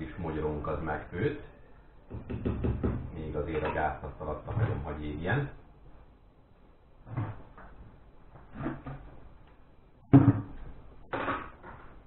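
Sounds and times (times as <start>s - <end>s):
plastic bucket knocking on worktop: 2.1s - 3.8s, 10.1s - 11.8s.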